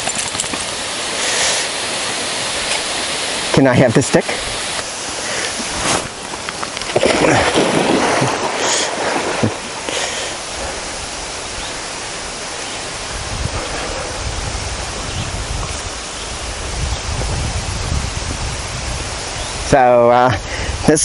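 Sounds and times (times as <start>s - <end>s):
steady hiss: 0.0s - 21.0s
dog splashing in water: 6.9s - 9.8s
wind buffeting microphone: 10.4s - 21.0s.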